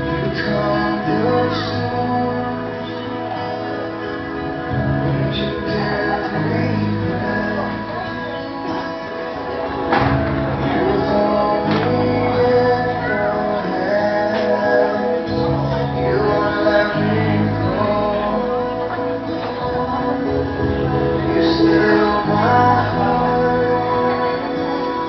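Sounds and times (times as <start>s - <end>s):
man and woman singing: 0.0s - 3.9s, 5.0s - 25.0s
instrumental backing with bass: 0.0s - 25.0s.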